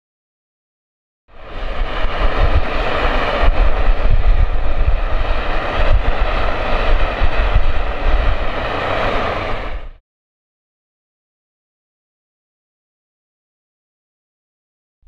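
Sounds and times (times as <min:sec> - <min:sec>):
furnace fire rushing roar: 0:01.3 - 0:10.0.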